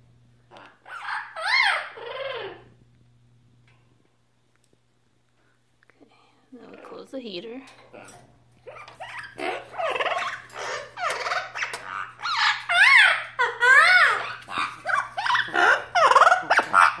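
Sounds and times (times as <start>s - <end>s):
parrot squawking: 0.5s - 2.7s, 7.9s - 17.0s
parrot whistled calls: 0.8s - 2.7s, 8.7s - 17.0s.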